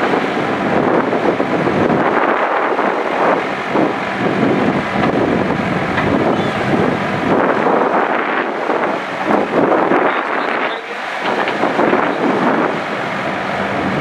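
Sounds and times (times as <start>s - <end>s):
diesel engine running under load: 0.0s - 14.0s
hydraulics working: 0.0s - 14.0s.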